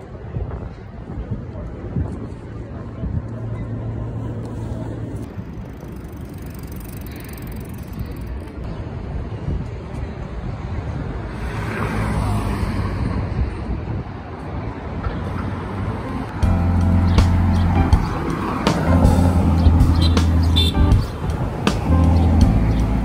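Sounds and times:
cars going by: 3.2s - 23.0s
vehicle passing close: 15.6s - 23.0s.

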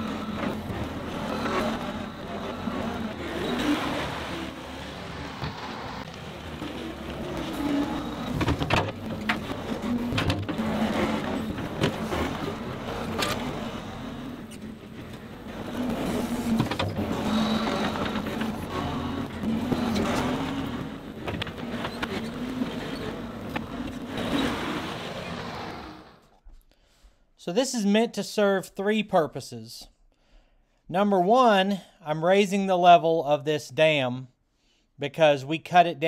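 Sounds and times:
knocks and clatter of tracks: 0.0s - 25.4s
loader diesel engine working: 0.0s - 26.2s.

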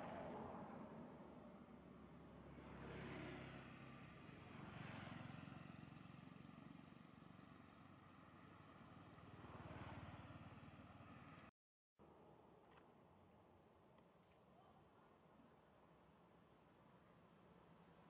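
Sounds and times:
vehicles passing: 0.0s - 11.5s.

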